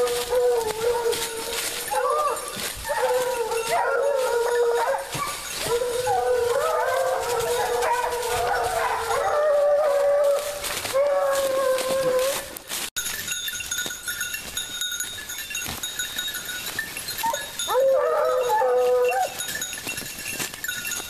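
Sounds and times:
hounds baying: 0.0s - 12.6s, 17.2s - 19.8s.

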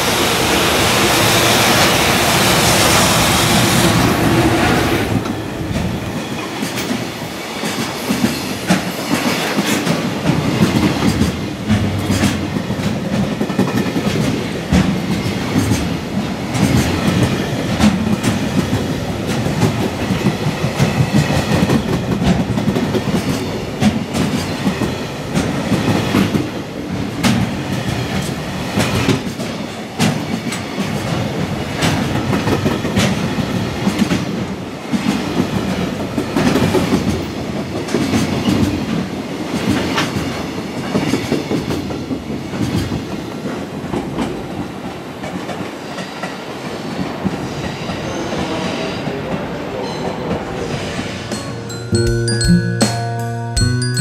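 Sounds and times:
train wheels clattering over rail joints: 5.8s - 26.5s.

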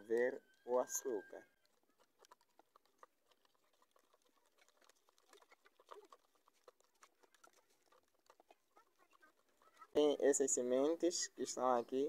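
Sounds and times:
metal spoon stirring in plastic cup: 0.9s - 10.0s.

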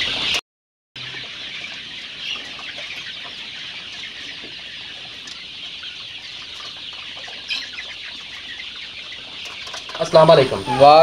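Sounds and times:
chicks peeping: 0.0s - 0.4s, 1.0s - 11.0s.

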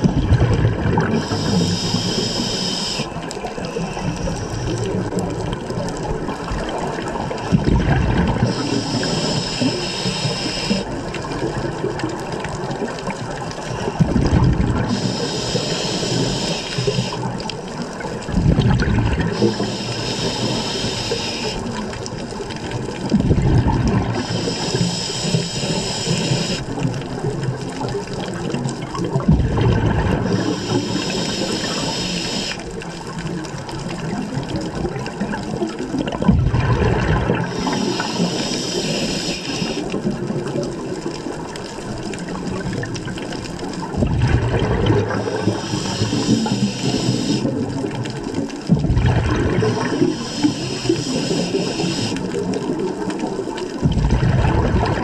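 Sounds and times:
exhaled bubbles underwater: 0.0s - 55.0s
hissing regulator inhale: 1.1s - 4.9s, 8.4s - 10.9s, 14.9s - 17.3s, 19.3s - 21.8s, 24.2s - 26.7s, 30.2s - 32.7s, 37.4s - 39.9s, 45.2s - 47.6s, 49.6s - 52.4s.

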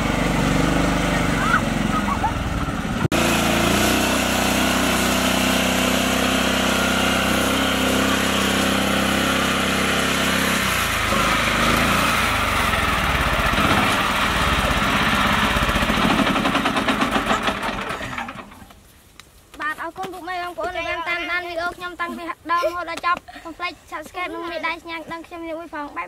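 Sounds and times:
small tractor engine running: 0.0s - 18.7s.

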